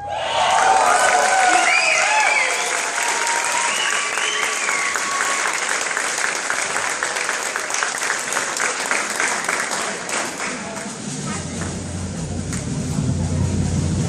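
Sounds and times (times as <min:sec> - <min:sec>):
whoops and shouts: 0:00.0 - 0:05.6
audience clapping: 0:00.2 - 0:11.8.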